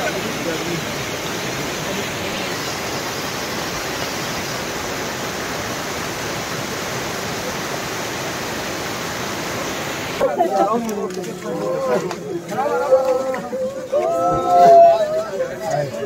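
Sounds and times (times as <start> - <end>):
floodwater rushing: 0.0 - 15.0.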